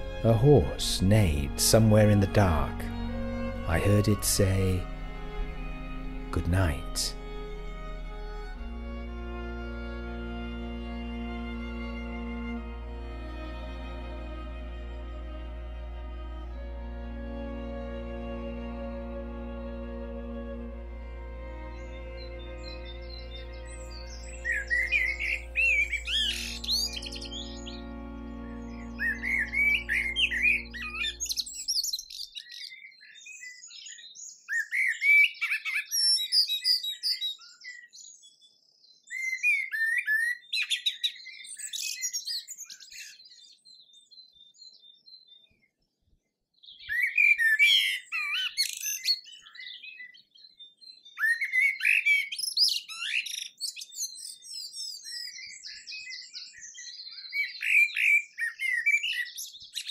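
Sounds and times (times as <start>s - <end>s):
background music: 0.0s - 31.6s
songbird twittering: 21.4s - 45.9s, 46.6s - 59.9s.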